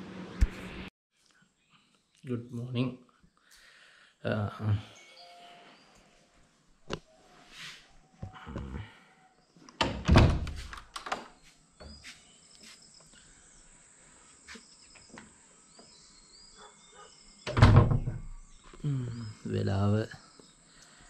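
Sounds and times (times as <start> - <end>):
faint bird chirps: 11.4 - 21.0.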